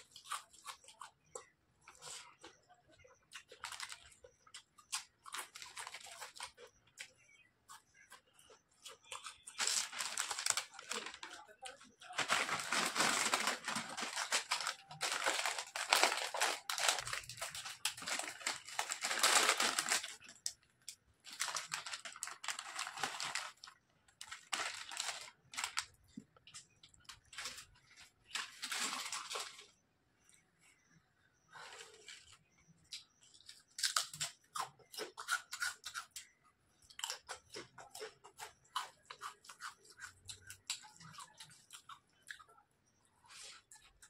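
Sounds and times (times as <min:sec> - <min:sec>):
plastic chip packets crinkling: 0:03.4 - 0:06.7, 0:09.0 - 0:29.8.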